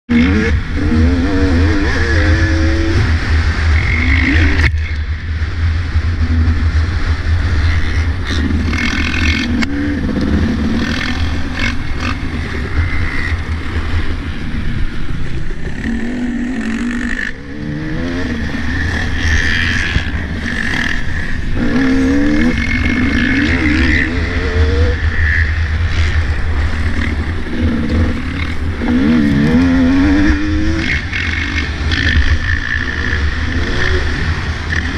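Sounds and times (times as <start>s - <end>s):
low wind rumble on microphone: 0.1s - 34.9s
motocross bike engine revving: 0.1s - 34.9s.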